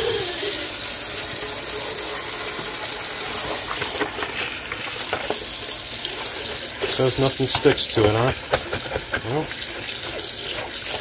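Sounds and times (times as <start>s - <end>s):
faucet water splashing on metal: 0.0s - 11.0s.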